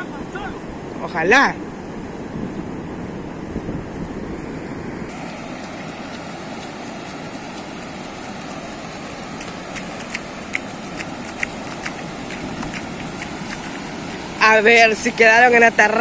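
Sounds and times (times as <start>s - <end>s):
wind buffeting microphone: 0.0s - 15.4s
ocean surf breaking: 0.0s - 16.0s
sharp splashy ticks: 5.1s - 14.4s.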